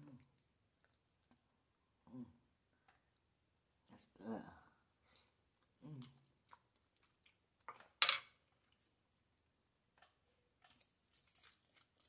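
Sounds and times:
faint clicks and taps: 0:09.9 - 0:11.4.

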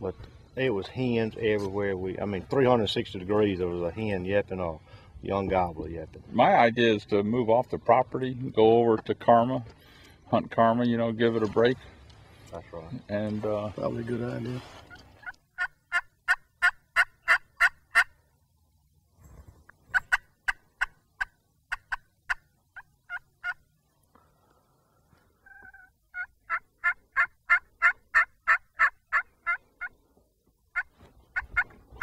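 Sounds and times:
wild turkey yelping: 0:14.9 - 0:18.2, 0:19.9 - 0:23.9, 0:25.3 - 0:30.1, 0:30.7 - 0:32.0.

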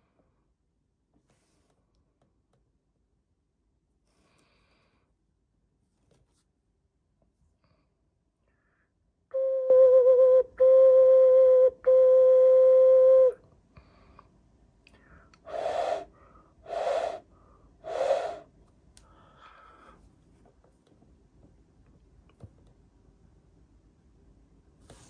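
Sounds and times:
hand whistle steady note: 0:09.3 - 0:13.4, 0:15.5 - 0:16.1, 0:16.7 - 0:17.3
breathy rushes of air: 0:15.5 - 0:16.1, 0:16.7 - 0:18.5.

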